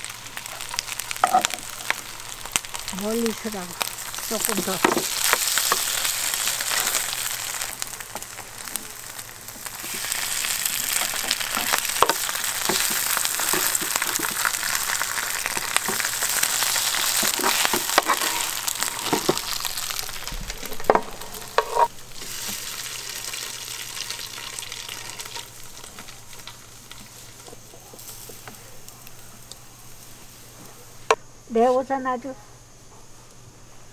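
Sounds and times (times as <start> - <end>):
ham sizzling in hot oil: 0.0 - 31.0
tongs and spatula scraping pan: 9.7 - 20.3, 20.9 - 22.7.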